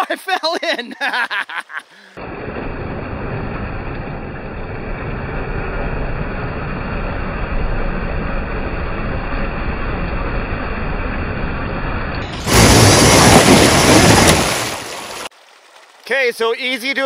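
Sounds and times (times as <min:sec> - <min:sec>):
water churning and splashing: 0:12.2 - 0:16.0.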